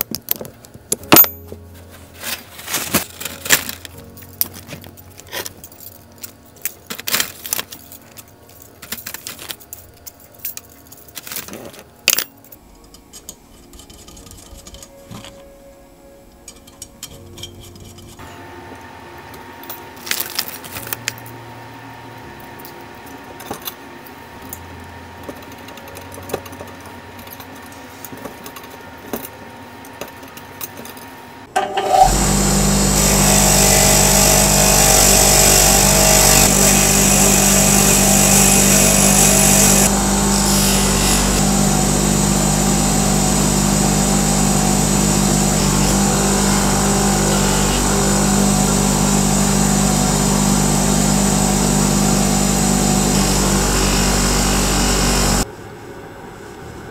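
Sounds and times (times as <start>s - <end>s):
bench grinder running: 31.6s - 55.5s.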